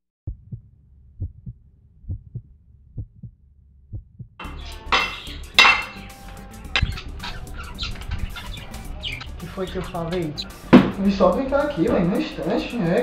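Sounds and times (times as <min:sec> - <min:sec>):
heartbeat thumps: 0:00.2 - 0:04.4, 0:09.8 - 0:11.1.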